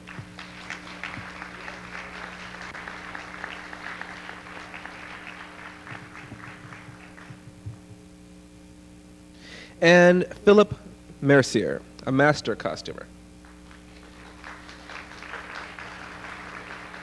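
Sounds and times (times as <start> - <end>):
audience applauding: 0.0 - 7.6, 13.4 - 17.0
steady electrical hum: 0.0 - 17.0.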